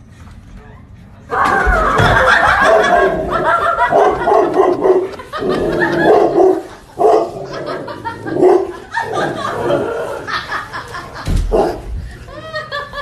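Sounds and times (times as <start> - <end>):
large dog barking: 2.3 - 9.8.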